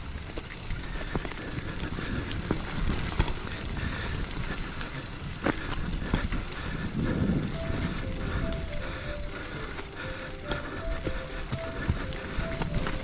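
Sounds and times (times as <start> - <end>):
bike knocks and rattles: 0.0 - 7.4
tyres rumbling on dirt: 0.0 - 13.0
wind: 0.0 - 13.0.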